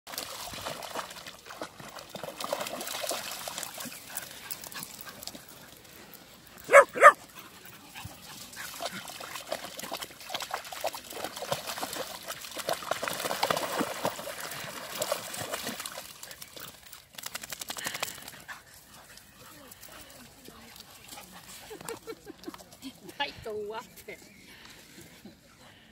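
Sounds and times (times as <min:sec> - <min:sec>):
dogs splashing in shallow water: 0:00.1 - 0:25.2
dog barking: 0:06.7 - 0:07.2.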